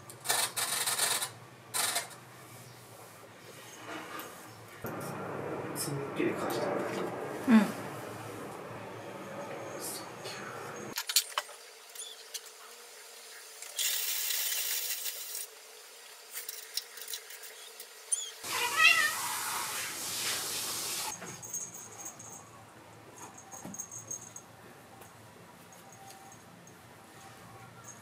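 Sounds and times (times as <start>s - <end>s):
cat meowing: 18.4s - 19.7s.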